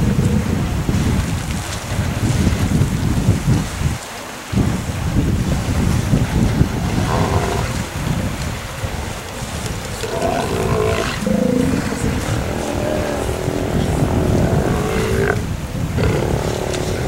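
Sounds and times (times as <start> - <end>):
sea lions calling: 6.7 - 8.0, 9.1 - 17.0
steady low rumble: 9.4 - 17.0.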